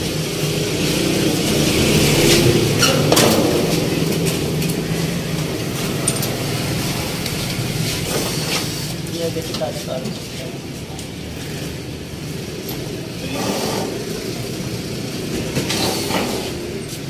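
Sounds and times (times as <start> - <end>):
mechanical hum: 0.0 - 17.0
metal knocks and clanks: 2.2 - 6.9.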